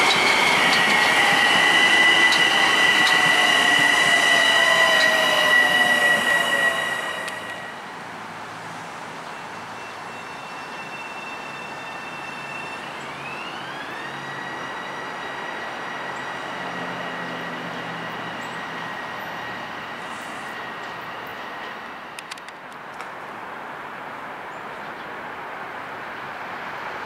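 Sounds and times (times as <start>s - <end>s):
train traction motor whine: 0.0s - 7.9s, 10.5s - 20.5s
train running noise: 0.0s - 27.0s.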